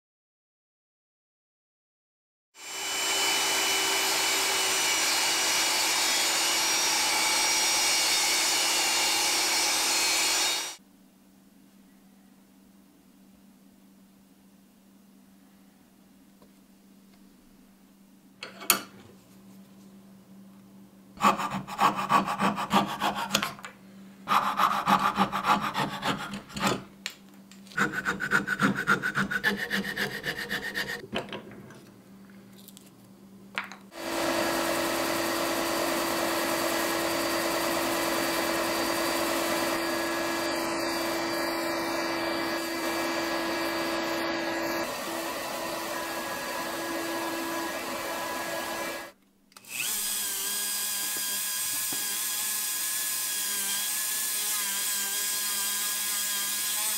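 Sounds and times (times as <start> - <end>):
belt sander humming: 2.6 - 10.8, 27.8 - 31.0, 34.0 - 56.9
hand saw cutting wood: 2.6 - 10.8, 21.2 - 23.6, 24.3 - 26.9, 27.8 - 31.0, 34.0 - 49.1, 49.7 - 56.9.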